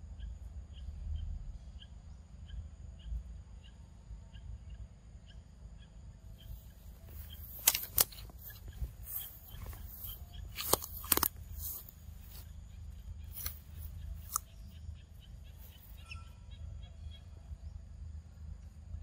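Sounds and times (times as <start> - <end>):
twigs cracking: 7.0 - 12.6, 13.2 - 14.6.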